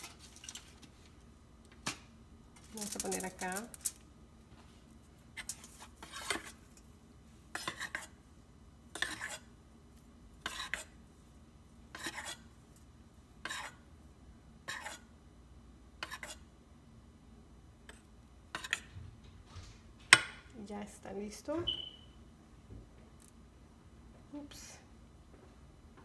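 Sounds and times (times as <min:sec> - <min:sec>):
metal spoon scraping metal pot: 0:05.4 - 0:06.6, 0:09.0 - 0:09.4, 0:10.4 - 0:10.9.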